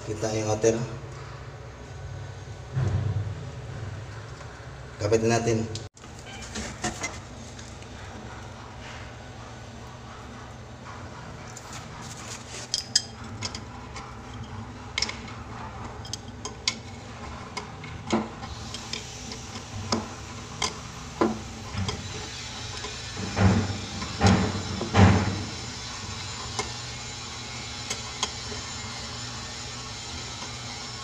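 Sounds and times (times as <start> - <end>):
steady low hum: 0.0 - 5.9.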